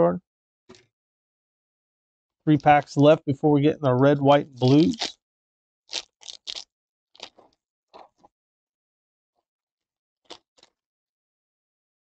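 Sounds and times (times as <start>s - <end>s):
foil wrapper tearing and crinkling: 4.6s - 5.2s, 5.9s - 6.6s.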